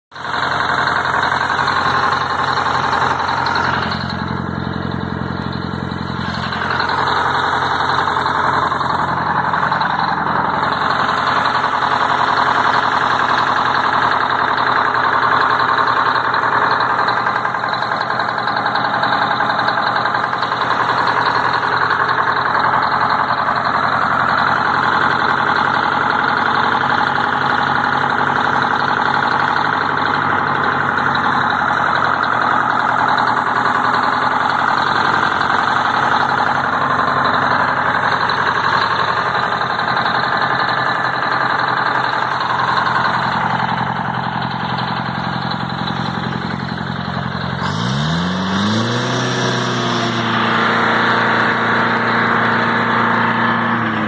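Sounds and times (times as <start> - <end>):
diesel engine idling: 0.1 - 54.0.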